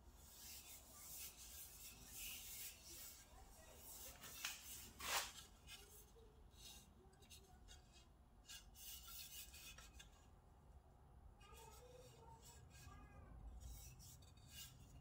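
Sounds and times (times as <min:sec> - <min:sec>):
hands rubbing on wood: 0:00.2 - 0:06.8.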